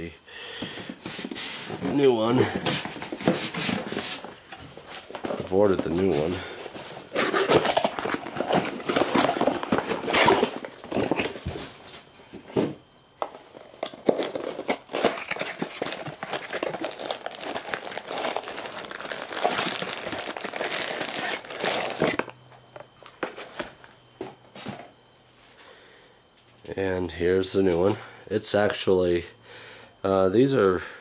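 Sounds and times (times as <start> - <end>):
plastic packaging crinkling: 0.7 - 11.9, 13.3 - 24.0.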